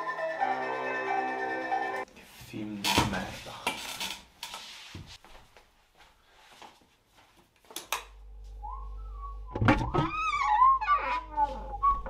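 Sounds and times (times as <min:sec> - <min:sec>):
faint whistled tone: 0:08.6 - 0:09.6.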